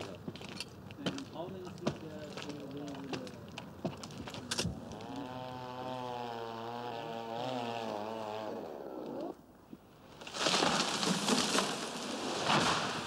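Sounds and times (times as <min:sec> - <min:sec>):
chainsaw running: 0:04.3 - 0:09.3
tree crashing down: 0:10.1 - 0:13.0.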